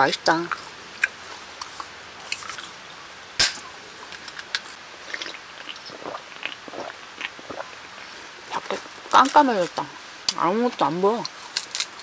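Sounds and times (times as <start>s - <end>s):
crunching and chewing crisp snack: 0.4s - 2.8s, 4.0s - 9.8s, 11.2s - 12.0s.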